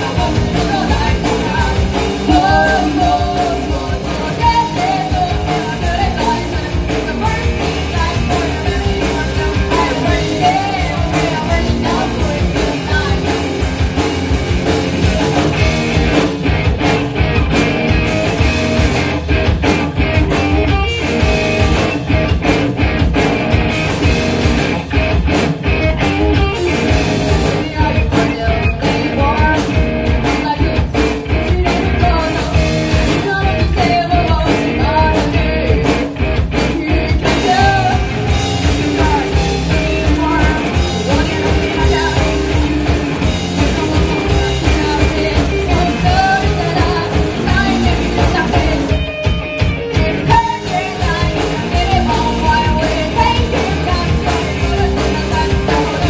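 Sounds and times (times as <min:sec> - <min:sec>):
person singing: 0:00.0 - 0:13.5, 0:14.9 - 0:15.9, 0:26.0 - 0:49.1, 0:49.8 - 0:56.0
drum kit: 0:00.0 - 0:56.0
electric guitars: 0:00.0 - 0:56.0.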